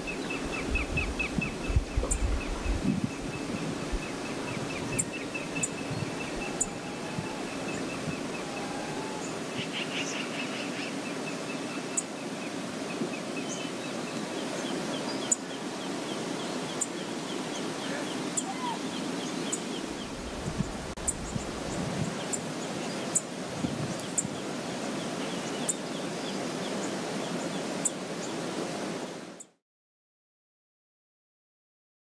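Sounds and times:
river running: 0.0s - 29.6s
bird chirping trill: 0.1s - 9.4s.

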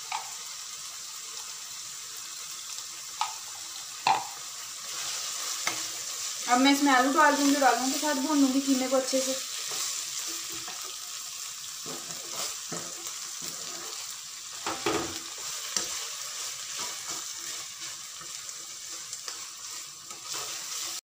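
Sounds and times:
meat sizzling in a wok: 0.0s - 21.0s
spatula scraping a wok: 4.7s - 11.0s, 11.7s - 21.0s.

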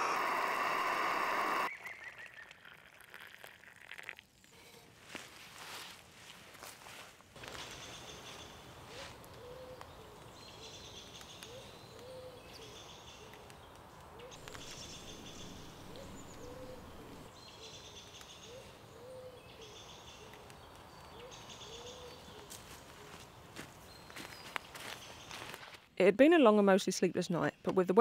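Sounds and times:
birds chirping: 7.6s - 25.6s
bird cooing: 8.9s - 10.2s, 11.5s - 12.5s, 14.2s - 17.3s, 18.5s - 19.6s.

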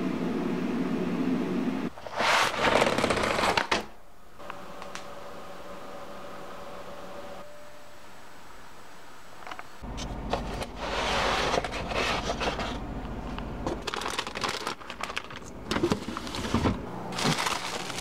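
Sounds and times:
refrigerator hum: 0.0s - 18.0s
egg carton sliding off shelf: 10.6s - 12.8s
plastic bag crinkling: 13.6s - 18.0s.

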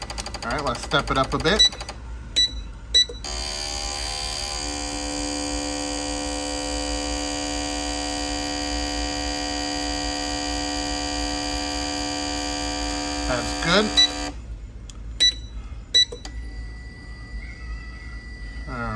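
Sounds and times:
steady electric buzz: 3.2s - 14.5s, 16.3s - 18.9s.

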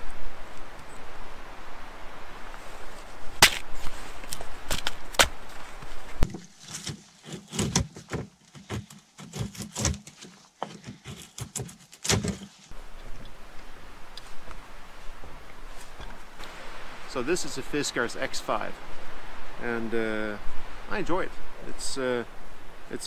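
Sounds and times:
wood cracking: 3.3s - 12.7s
hatchet chopping wood: 3.4s - 5.4s, 6.3s - 12.4s.

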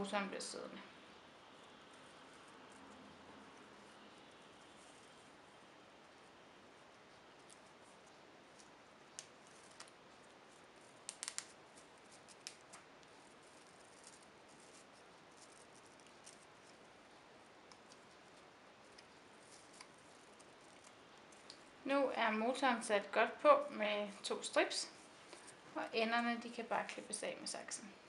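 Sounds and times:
cable tie clicks: 11.0s - 11.6s.

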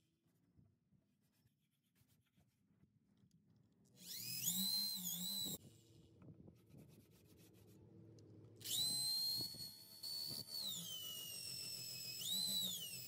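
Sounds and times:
drill whining: 4.0s - 5.6s, 8.6s - 13.0s.

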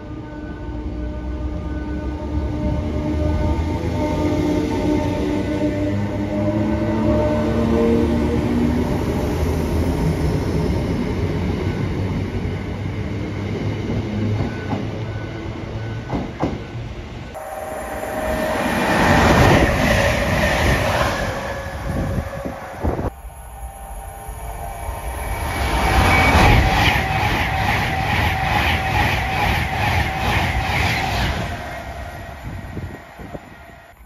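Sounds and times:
diesel train running: 1.5s - 34.0s
electric train running: 17.4s - 34.0s.

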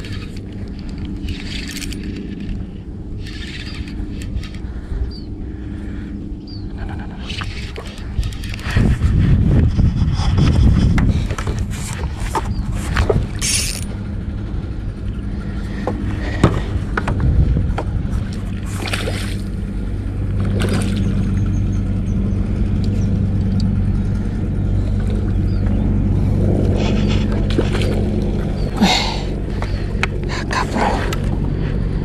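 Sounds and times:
boat engine humming: 0.0s - 32.0s
fish splashing in water: 18.5s - 21.4s.

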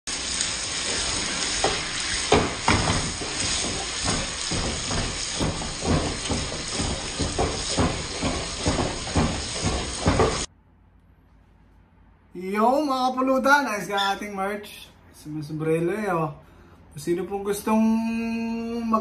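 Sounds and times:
meat sizzling in a frying pan: 0.1s - 10.5s.

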